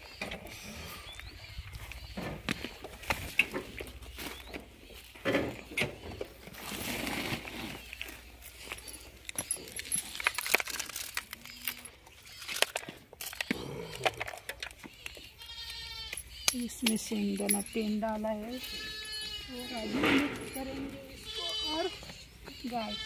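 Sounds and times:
dry feed rustling: 5.9 - 13.0.

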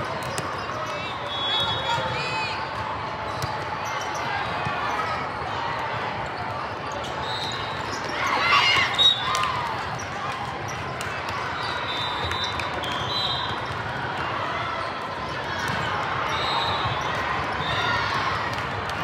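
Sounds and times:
crowd chatter: 0.0 - 19.0
referee whistle blasts: 1.2 - 2.0, 11.7 - 13.6.

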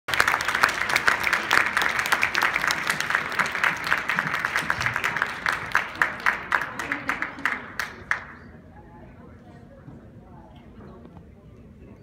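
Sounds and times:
audience applauding: 0.1 - 8.4.

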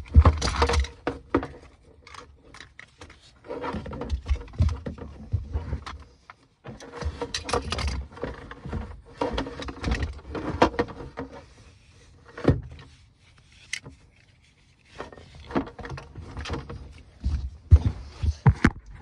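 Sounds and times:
seatbelt buckle handling: 13.3 - 15.0.

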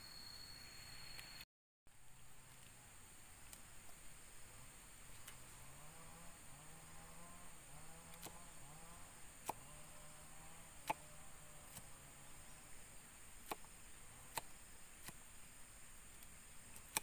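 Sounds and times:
faint droning hum: 0.0 - 17.0
machete chopping coconut husk: 7.7 - 12.0, 13.4 - 15.2, 16.8 - 17.0.

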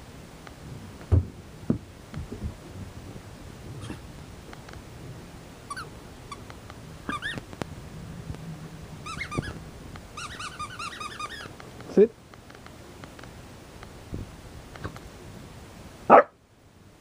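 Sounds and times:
puppy whining: 3.8 - 4.1, 5.7 - 6.4, 7.1 - 7.4, 9.0 - 9.6, 10.2 - 11.5.

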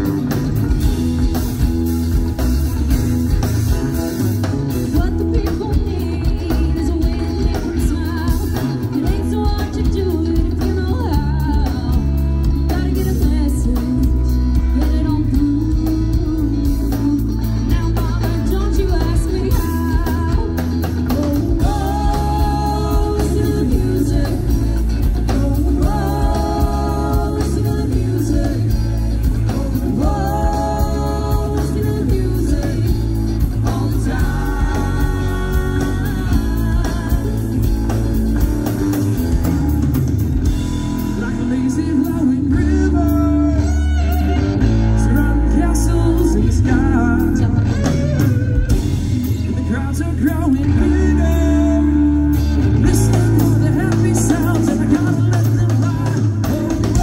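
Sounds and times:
live band playing: 0.0 - 57.0
person singing: 4.9 - 38.8, 41.0 - 57.0.

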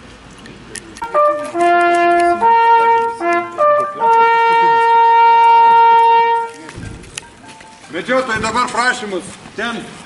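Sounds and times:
hunting horn call: 1.0 - 6.8.

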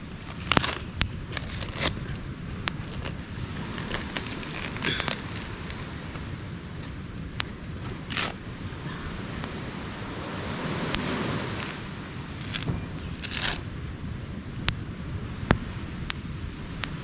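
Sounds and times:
rustling: 0.0 - 6.2, 11.5 - 13.7
campfire crackling and popping: 0.0 - 17.0.

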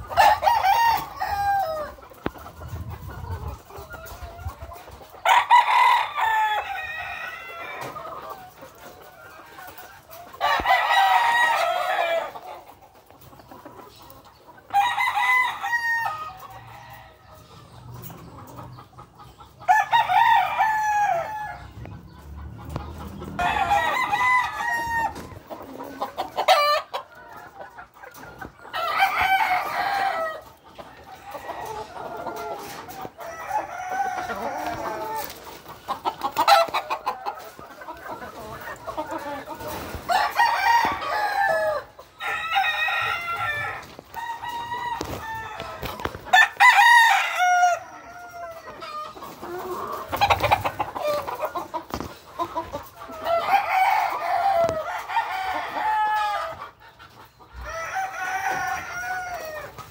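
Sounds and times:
roosters crowing: 0.0 - 13.2, 14.7 - 18.6, 19.6 - 27.5, 28.1 - 56.8, 57.5 - 59.9.

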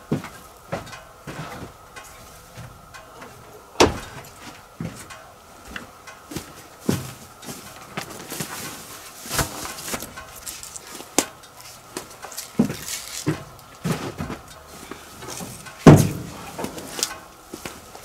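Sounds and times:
wooden poles knocking: 2.6 - 5.2, 15.6 - 16.8
heavy thump: 3.8 - 5.0, 15.8 - 16.8.

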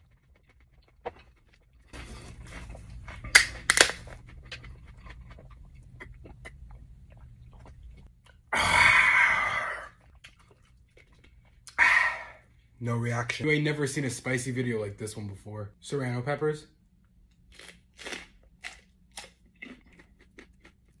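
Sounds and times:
chewing and drinking: 0.0 - 3.4, 4.0 - 8.5, 9.9 - 11.8, 18.6 - 21.0
loud open-mouthed breath out: 11.8 - 12.4.

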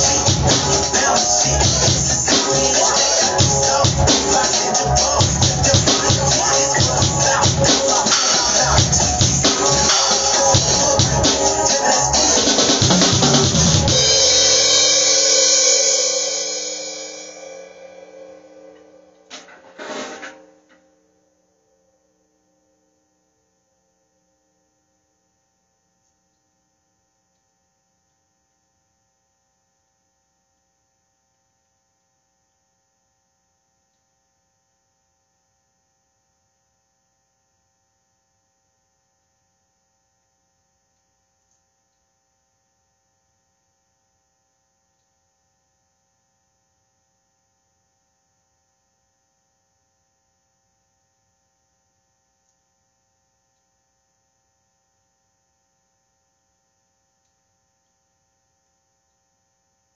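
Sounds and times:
thin high whine: 0.0 - 21.6.

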